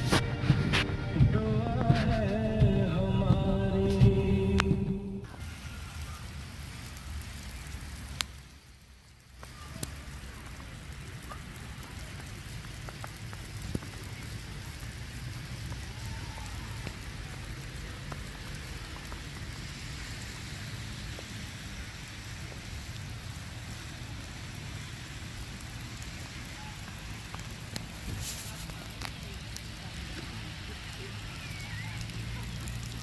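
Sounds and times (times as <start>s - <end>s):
low rumble: 0.0s - 5.4s.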